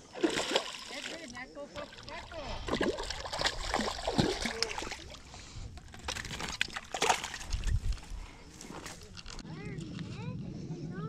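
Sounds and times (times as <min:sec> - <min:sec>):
fish splashing in water: 0:00.0 - 0:05.3, 0:05.9 - 0:07.8.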